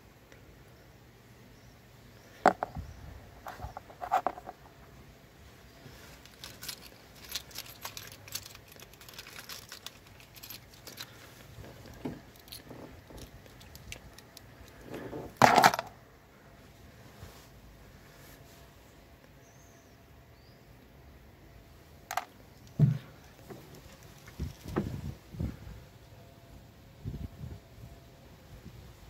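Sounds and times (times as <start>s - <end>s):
handling clicks and rattles: 3.4s - 4.7s, 5.9s - 15.9s, 22.1s - 25.0s
car keys jingling on plastic: 6.0s - 14.8s, 23.5s - 24.8s.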